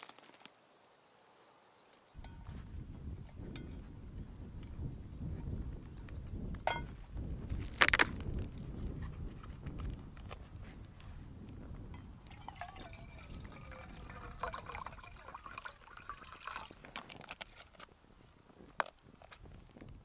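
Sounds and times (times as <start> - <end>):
twig fire crackling: 6.3 - 20.0
water simmering and hissing: 12.1 - 17.4.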